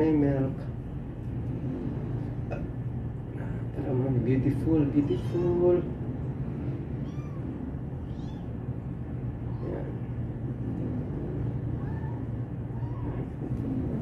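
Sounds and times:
steady low hum: 0:00.0 - 0:14.0
kitten mewing: 0:07.0 - 0:08.6, 0:11.7 - 0:13.8.

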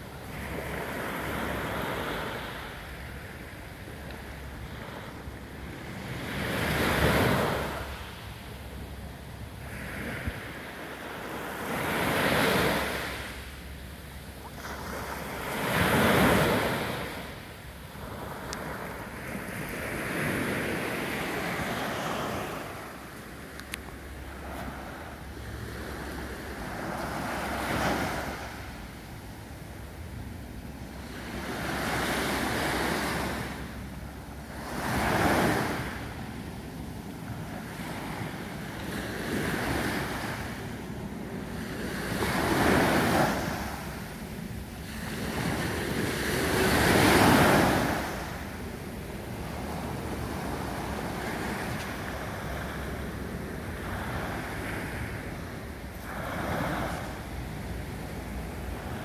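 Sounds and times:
small waves washing up beach: 0:00.0 - 0:59.0.

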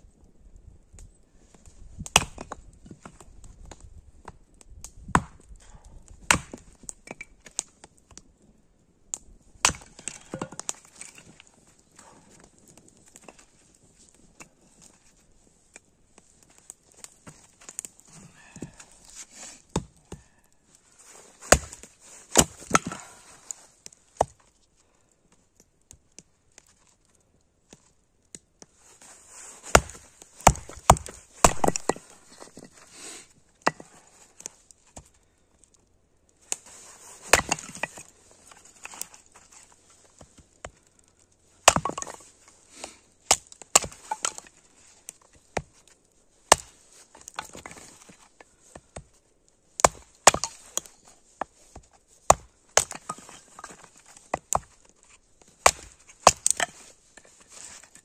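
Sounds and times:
hatchet chopping kindling: 0:02.1 - 0:02.6, 0:05.1 - 0:05.4, 0:06.2 - 0:06.7, 0:09.6 - 0:11.3, 0:21.5 - 0:23.3, 0:29.6 - 0:32.6, 0:37.2 - 0:38.1, 0:41.6 - 0:44.5, 0:46.5 - 0:48.0, 0:49.8 - 0:54.7, 0:55.6 - 0:56.9.

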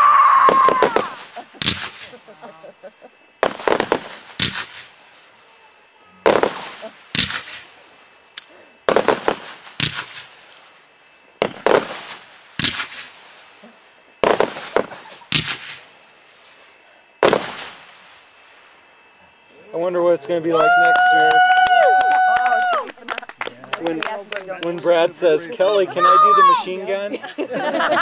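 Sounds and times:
fireworks bangs: 0:00.0 - 0:02.4, 0:03.4 - 0:05.5, 0:06.1 - 0:10.8, 0:11.4 - 0:18.6.

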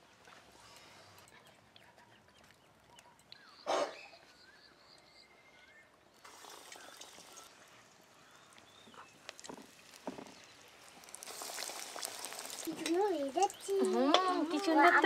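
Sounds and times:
faint bird chirps: 0:00.6 - 0:06.2
food sizzling in hot oil: 0:06.2 - 0:15.0.

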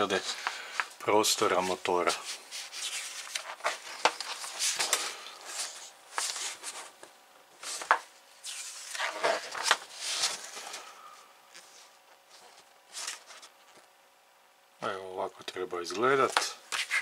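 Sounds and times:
magazine pages rustling: 0:00.2 - 0:10.9, 0:11.5 - 0:13.9.

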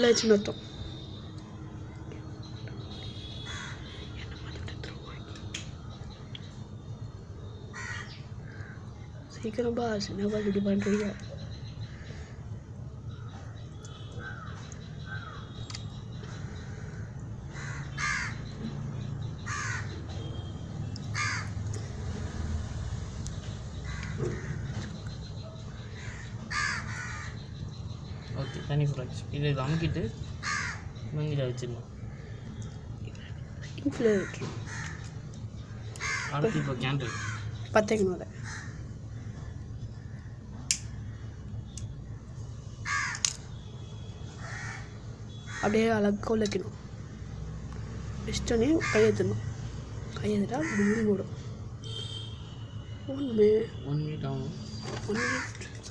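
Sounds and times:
crow cawing: 0:03.4 - 0:04.0, 0:07.7 - 0:08.9, 0:10.3 - 0:11.2, 0:14.2 - 0:15.5, 0:16.3 - 0:18.6, 0:19.4 - 0:20.0, 0:21.1 - 0:21.6, 0:23.8 - 0:25.0, 0:25.8 - 0:27.7, 0:30.4 - 0:31.1, 0:34.2 - 0:35.2, 0:35.8 - 0:37.7, 0:38.3 - 0:40.4, 0:42.8 - 0:43.4, 0:44.4 - 0:45.8, 0:48.7 - 0:49.5, 0:50.5 - 0:52.3, 0:55.1 - 0:55.8
sharp clicks: 0:15.6 - 0:16.0, 0:40.7 - 0:40.9
bird calling: 0:23.4 - 0:28.7, 0:34.0 - 0:41.4, 0:50.6 - 0:51.2, 0:54.5 - 0:55.9.

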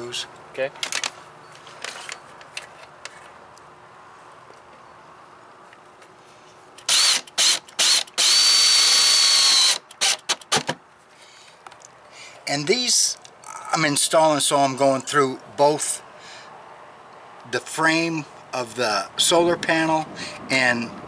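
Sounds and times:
drill motor whine: 0:06.9 - 0:10.2.

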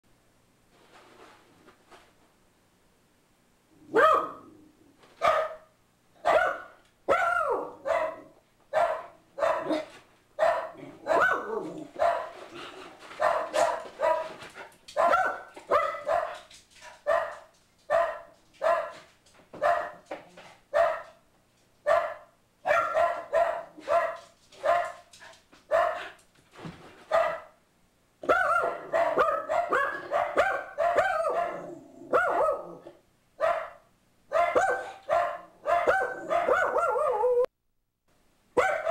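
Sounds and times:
dog barking sharply: 0:03.9 - 0:04.5, 0:05.2 - 0:12.3, 0:13.2 - 0:14.3, 0:15.0 - 0:16.4, 0:17.0 - 0:19.0, 0:20.8 - 0:21.2, 0:21.9 - 0:25.0, 0:25.7 - 0:26.1, 0:27.1 - 0:27.6, 0:28.2 - 0:32.7, 0:33.4 - 0:37.3, 0:38.6 - 0:38.9.

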